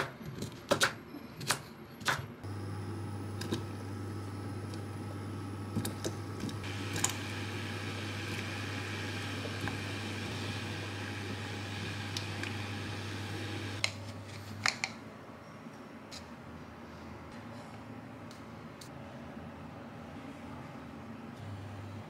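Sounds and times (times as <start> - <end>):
electric hob humming: 2.4 - 13.8.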